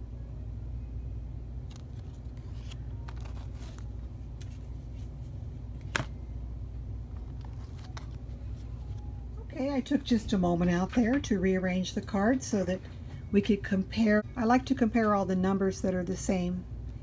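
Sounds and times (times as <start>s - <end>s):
low hum: 0.0s - 17.0s
cards rustling and tapping: 1.7s - 6.2s, 7.1s - 9.1s.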